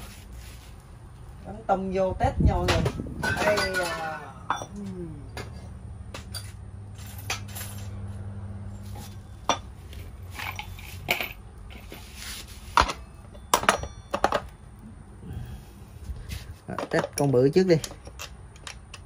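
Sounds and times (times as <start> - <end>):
steady low hum: 0.0 - 17.2
metal parts clinking: 9.0 - 12.1, 16.7 - 19.0.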